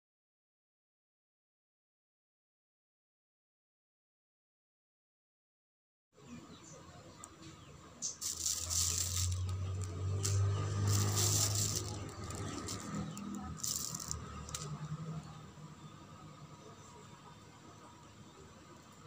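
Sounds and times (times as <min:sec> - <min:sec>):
plastic bag crinkling: 0:08.0 - 0:14.7
dry chillies pattering: 0:08.0 - 0:15.0.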